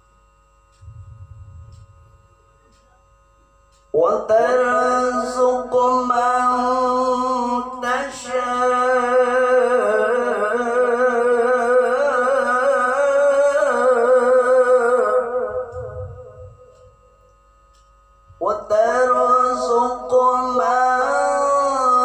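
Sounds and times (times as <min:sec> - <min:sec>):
man reciting melodically: 0:03.9 - 0:16.9, 0:18.4 - 0:22.0.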